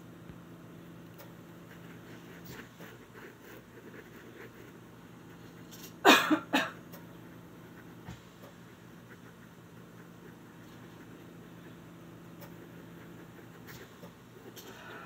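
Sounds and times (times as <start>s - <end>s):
pen scratching on paper: 1.6s - 6.0s, 7.4s - 15.0s
person coughing: 5.9s - 6.8s.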